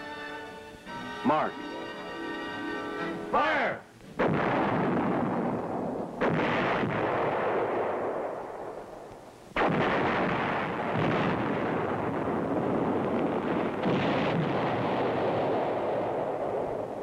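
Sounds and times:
artillery blasts echoing: 4.2s - 17.0s.

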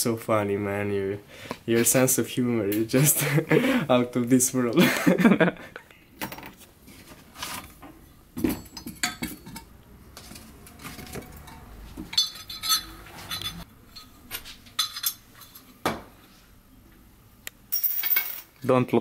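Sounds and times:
metal tools clinking: 10.4s - 15.6s.

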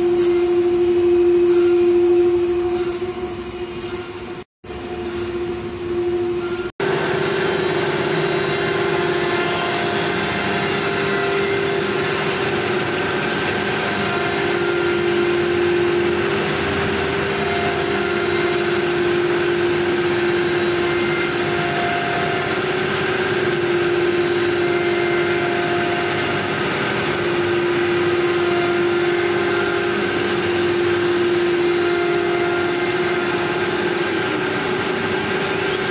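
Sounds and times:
machine noise hiss: 0.0s - 35.9s
router spindle whine: 0.0s - 35.9s.

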